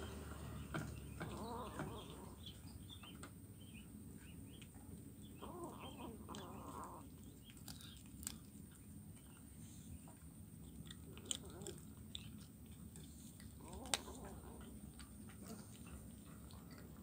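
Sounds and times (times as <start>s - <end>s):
birds chirping: 0.0s - 12.6s
kitten chewing bones: 0.6s - 3.4s, 4.2s - 17.0s.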